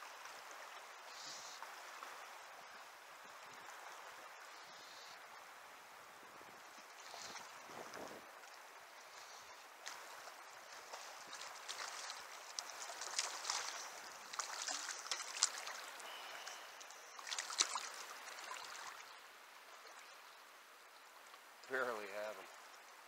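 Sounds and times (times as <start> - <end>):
river current rushing: 0.0 - 20.8
sharp splashes on water: 9.8 - 19.1.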